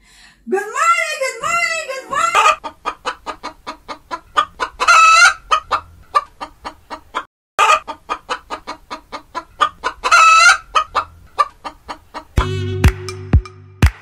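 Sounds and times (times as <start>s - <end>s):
chicken squawk: 2.0s - 12.3s
chicken clucking: 2.0s - 12.4s.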